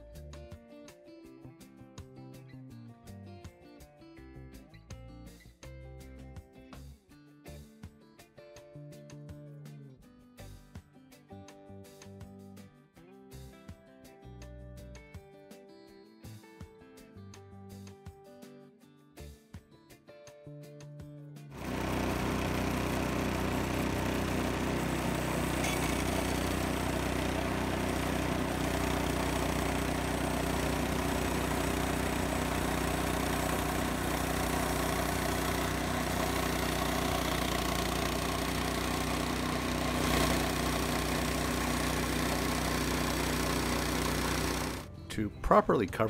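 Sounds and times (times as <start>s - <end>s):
small gasoline engine running: 21.5s - 45.1s
band saw blade cutting wood: 21.6s - 44.9s.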